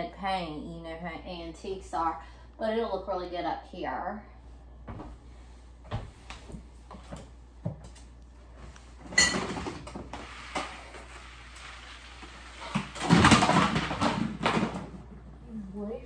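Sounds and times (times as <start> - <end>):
objects clattering: 9.0 - 15.2.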